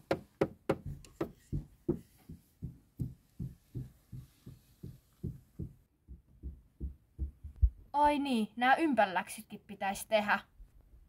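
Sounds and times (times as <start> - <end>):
toy boots tapping on floor: 0.0 - 7.7.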